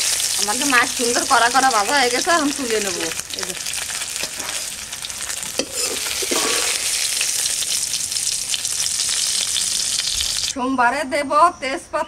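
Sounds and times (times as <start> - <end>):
prawns sizzling in oil: 0.0 - 10.6.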